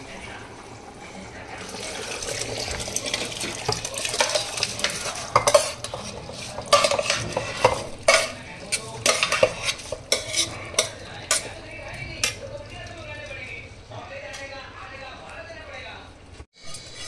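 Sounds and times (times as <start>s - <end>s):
metal spatula scraping and knocking: 2.7s - 13.4s, 16.6s - 17.0s.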